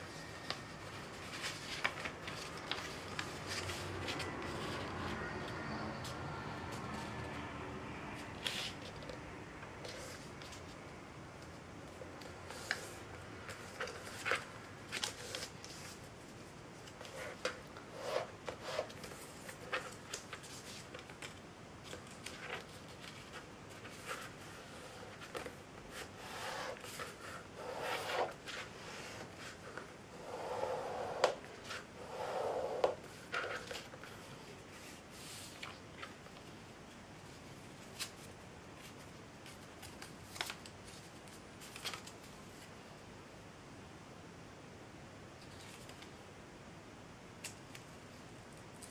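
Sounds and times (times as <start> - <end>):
paper folding crinkles: 0.1 - 7.3, 11.5 - 30.0, 33.0 - 42.8.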